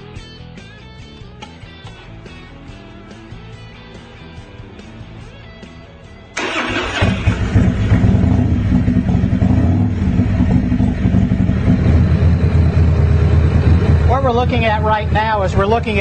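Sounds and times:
motorcycle engine starting and idling: 6.4s - 16.0s.

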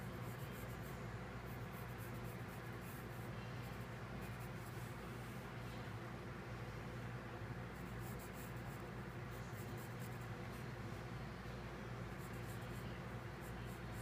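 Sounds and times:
pencil scratching on paper: 0.0s - 4.9s, 7.7s - 10.6s, 12.1s - 14.0s
steady low hum: 0.0s - 14.0s.

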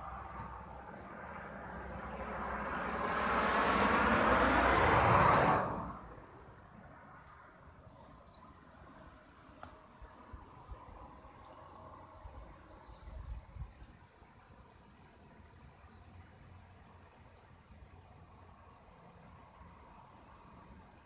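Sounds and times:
vehicle passing: 0.0s - 7.3s.

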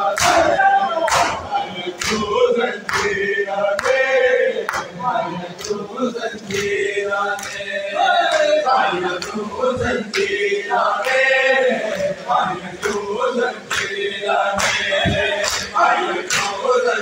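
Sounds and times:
men chanting together: 0.0s - 17.0s.

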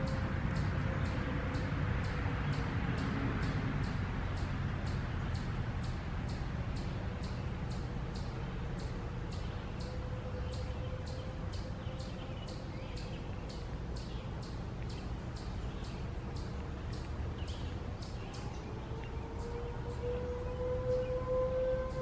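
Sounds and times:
warning siren: 0.0s - 2.4s, 7.2s - 13.1s, 18.4s - 22.0s.

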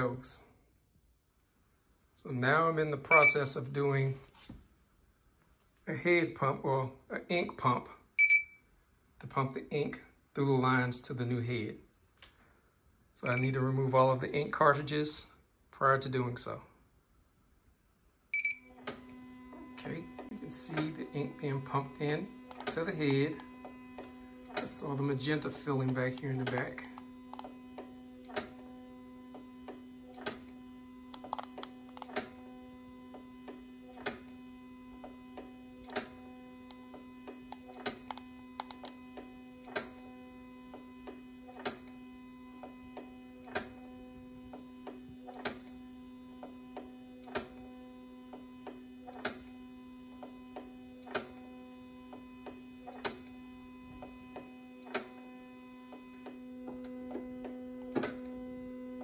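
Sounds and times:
electrical hum: 17.9s - 59.0s
sharp mechanical clicks: 22.4s - 24.8s, 31.1s - 32.3s, 35.4s - 40.0s.

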